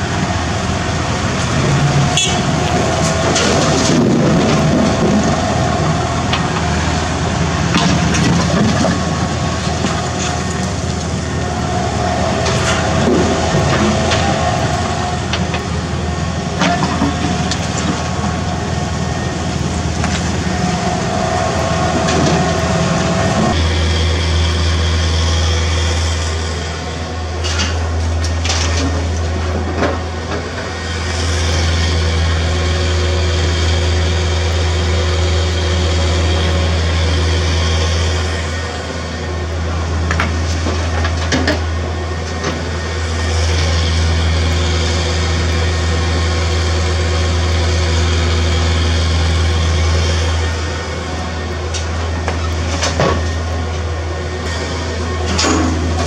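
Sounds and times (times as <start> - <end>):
diesel excavator engine running: 0.0 - 56.0.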